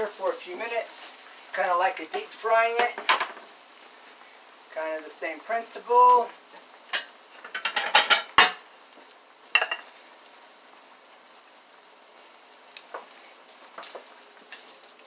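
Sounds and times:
dough sizzling in oil: 0:00.0 - 0:15.0
oil crackling pops: 0:12.1 - 0:15.0.

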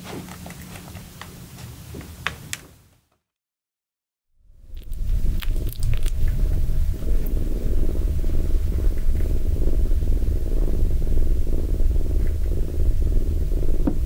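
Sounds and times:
faint steady hum: 0:04.4 - 0:14.0
cat purring: 0:04.5 - 0:14.0.

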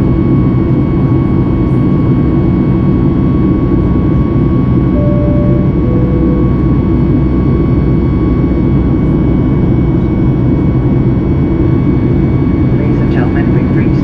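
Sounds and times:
two-note falling cabin chime: 0:05.0 - 0:07.1.

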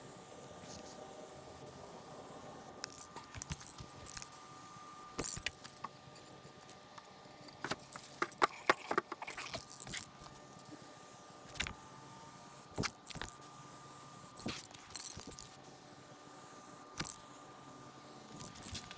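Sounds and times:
spray can ball rattling: 0:07.6 - 0:10.1.

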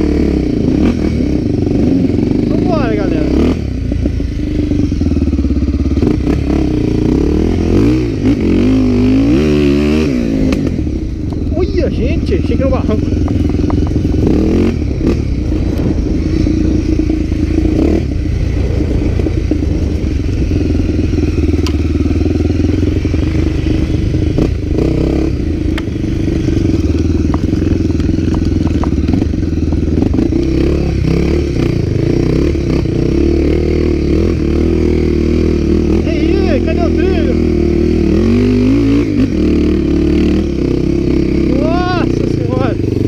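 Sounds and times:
motorcycle engines running: 0:00.0 - 0:43.0
sharp clicks and clatter: 0:13.0 - 0:14.3, 0:25.6 - 0:30.6.

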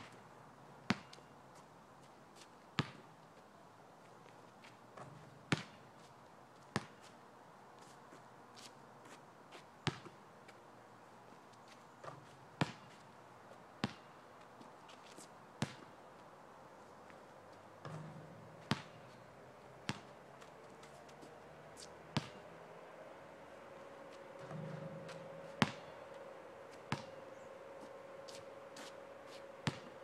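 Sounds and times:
basketball bouncing on asphalt: 0:00.9 - 0:01.3, 0:02.4 - 0:03.1, 0:04.6 - 0:07.2, 0:09.8 - 0:10.2, 0:11.7 - 0:13.2, 0:13.8 - 0:15.0, 0:15.6 - 0:16.0, 0:17.8 - 0:21.0, 0:21.8 - 0:22.5, 0:24.4 - 0:27.3, 0:29.6 - 0:30.0.

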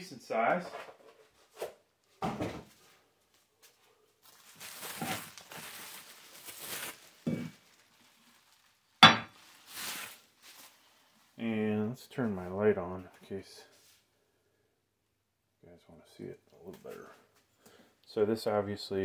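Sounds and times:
bubble wrap rustling: 0:03.2 - 0:11.4
steel knocking on stone countertop: 0:09.0 - 0:09.3.

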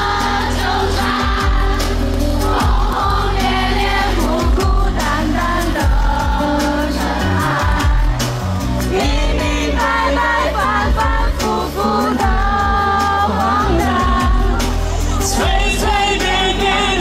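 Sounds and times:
heavy bass beat: 0:00.0 - 0:17.0
live pop song through pa: 0:00.0 - 0:17.0
man singing: 0:11.4 - 0:17.0.

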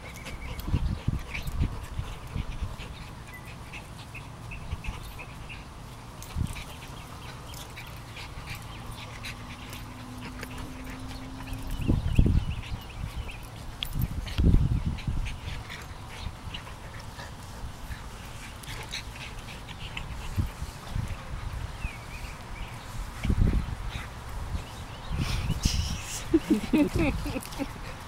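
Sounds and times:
dogs grunting and growling: 0:06.7 - 0:13.0.

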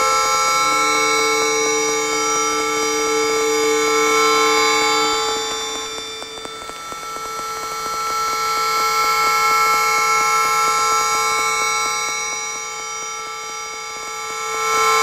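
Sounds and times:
synthesizer drone chord: 0:00.0 - 0:06.4
fast ticking pulse: 0:04.3 - 0:14.0.

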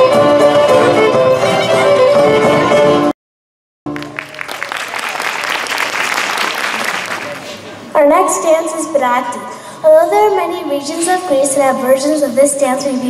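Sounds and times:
folk ensemble with violin lead: 0:00.0 - 0:03.1
audience applause: 0:03.9 - 0:07.8.

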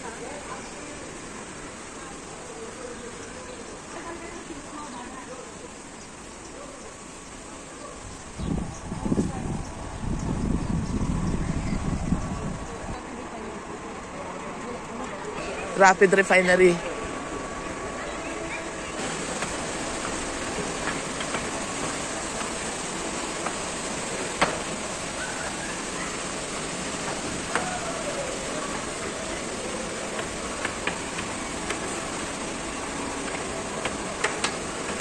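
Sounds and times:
steady rushing noise: 0:07.0 - 0:35.0.

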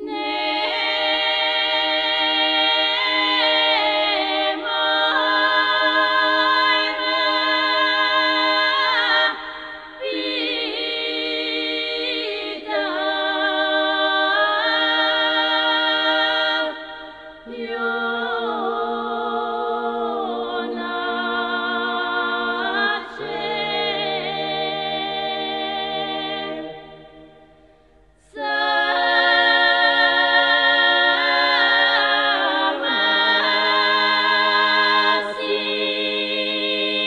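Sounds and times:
women's choir singing: 0:00.0 - 0:37.0.

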